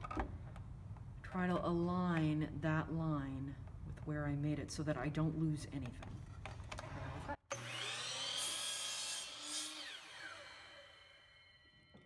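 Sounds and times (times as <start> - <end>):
miter saw cutting wood: 7.5 - 11.7.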